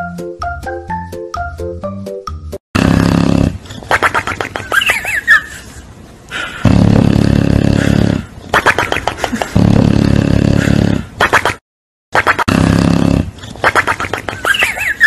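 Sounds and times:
dog snoring: 6.6s - 8.3s, 9.7s - 11.0s.

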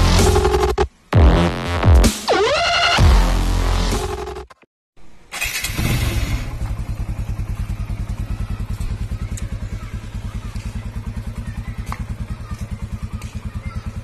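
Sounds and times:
electric starter cranking: 5.3s - 6.6s
motorcycle engine idling: 5.7s - 14.0s.

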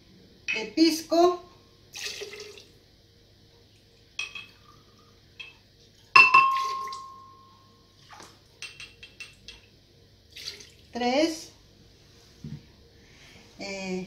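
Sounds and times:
liquid pouring: 1.9s - 2.8s, 6.0s - 7.1s, 10.3s - 10.9s
glass cup clinking against glass: 4.2s - 4.6s, 6.2s - 7.6s, 8.6s - 9.6s.

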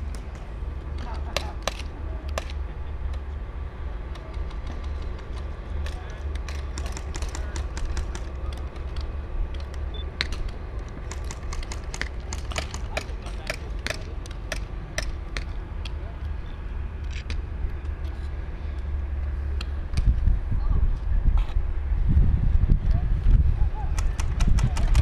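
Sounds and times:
low rumble: 14.0s - 25.0s.

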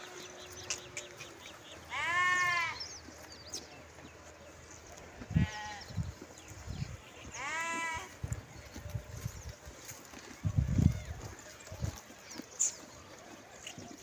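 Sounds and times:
sheep bleating: 1.8s - 2.8s, 5.3s - 5.9s, 7.2s - 8.2s.

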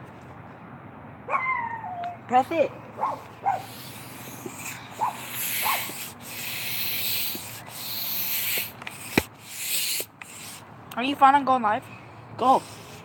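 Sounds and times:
hand air pump hissing: 3.2s - 10.7s, 12.4s - 13.0s.

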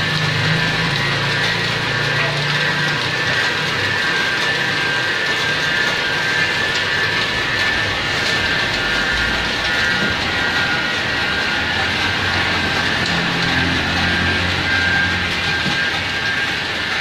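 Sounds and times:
printing machine whirring: 0.0s - 17.0s.

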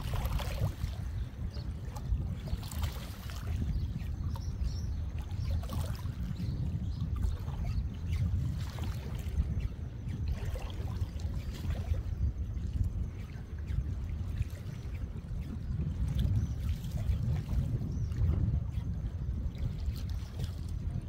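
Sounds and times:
sea water sloshing among rocks: 0.0s - 4.8s
steady low rumble: 0.0s - 21.0s.

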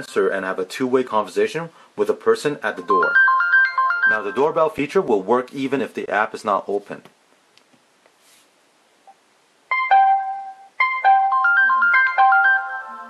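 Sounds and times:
electronic doorbell ringtone: 3.0s - 4.4s, 9.7s - 13.0s.

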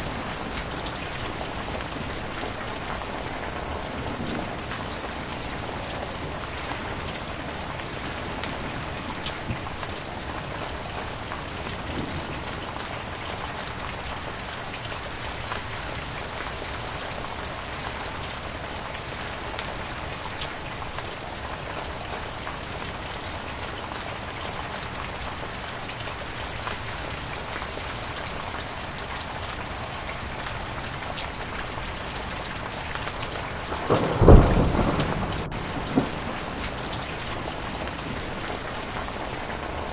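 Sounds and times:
heavy rain: 0.0s - 39.9s
thunder clap: 33.6s - 38.7s.

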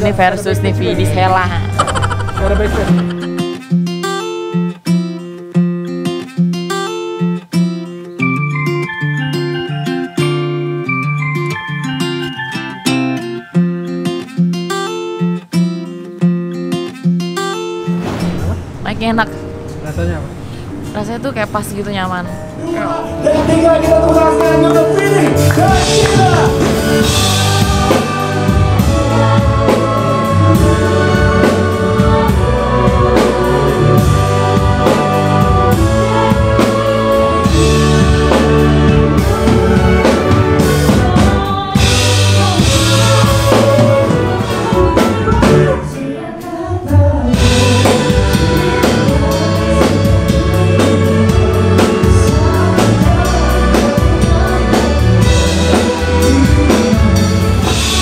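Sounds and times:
bass guitar: 0.0s - 7.0s, 22.6s - 46.0s, 46.9s - 58.0s
live band playing: 0.0s - 16.8s, 21.7s - 46.0s, 47.1s - 58.0s
man singing: 22.6s - 27.1s, 42.3s - 58.0s
drum kit: 23.2s - 46.5s, 47.2s - 58.0s.

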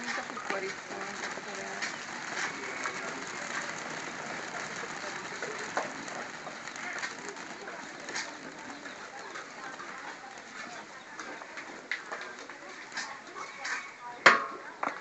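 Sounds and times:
rice kernels popping: 0.0s - 13.9s.

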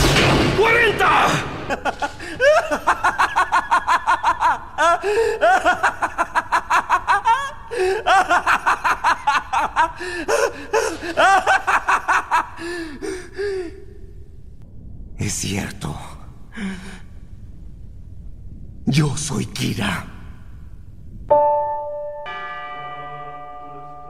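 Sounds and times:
man laughing evilly: 1.5s - 13.8s.

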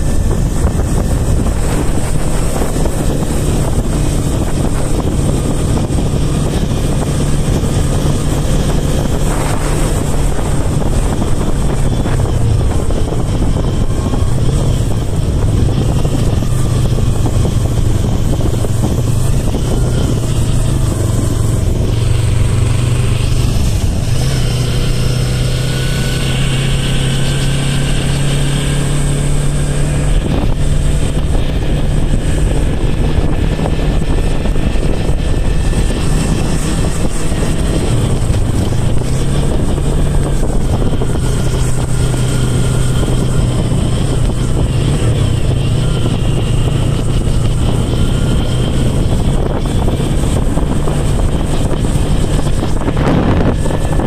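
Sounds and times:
motorcycle engine running: 0.0s - 54.0s
wind and road noise on gravel: 0.0s - 54.0s.

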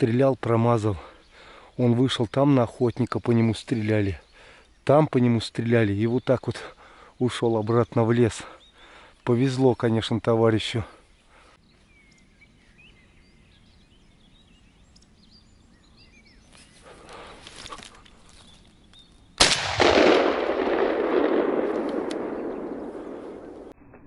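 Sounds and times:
faint bird chirps: 0.8s - 19.4s
shotgun shot echoing: 19.4s - 24.0s.

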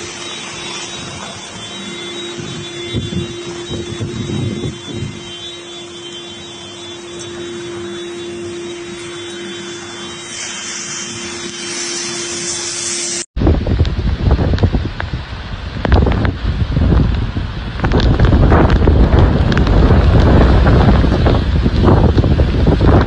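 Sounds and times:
wind buffeting microphone: 0.0s - 6.0s, 13.4s - 23.0s
heavy rain: 0.0s - 23.0s
low hum: 0.0s - 23.0s
storm wind: 0.0s - 23.0s.

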